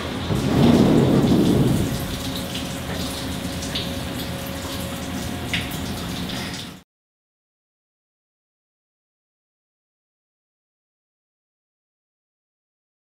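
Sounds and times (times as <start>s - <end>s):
sliding doors rolling open: 0.0s - 3.0s
faint machine hum: 0.0s - 6.8s.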